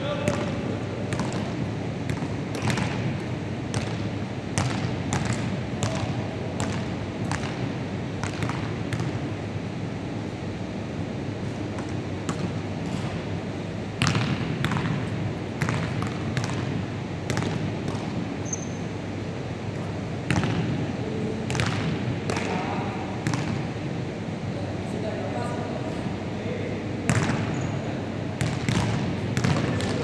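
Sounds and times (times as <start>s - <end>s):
basketballs bouncing on wooden floor: 0.2s - 9.3s, 11.8s - 13.1s, 14.0s - 18.8s, 19.7s - 20.7s, 21.5s - 23.7s, 27.1s - 27.6s, 28.4s - 30.0s
short high squeak: 18.4s - 18.9s.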